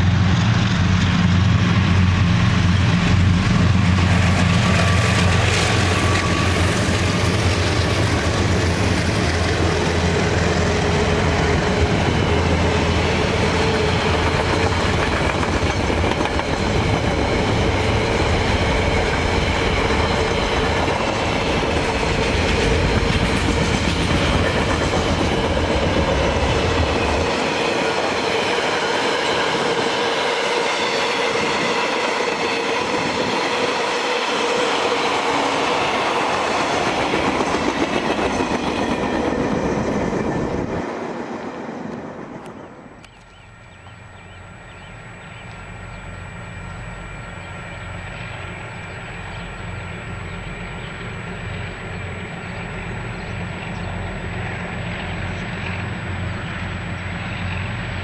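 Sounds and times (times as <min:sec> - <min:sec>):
train wheels clattering over joints: 0:11.7 - 0:29.7.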